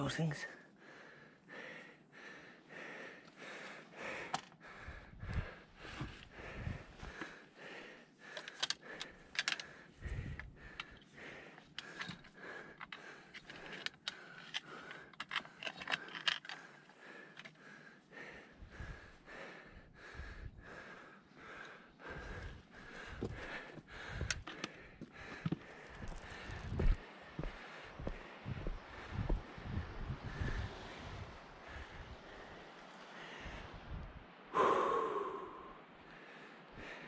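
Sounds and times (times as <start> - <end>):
low rumbles: 25.2 - 31.9.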